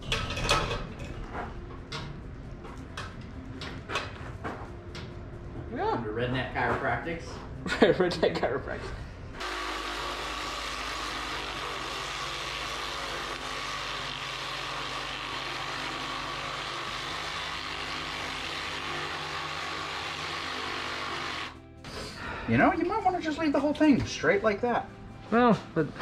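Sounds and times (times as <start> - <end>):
machine hum: 9.1 - 21.8.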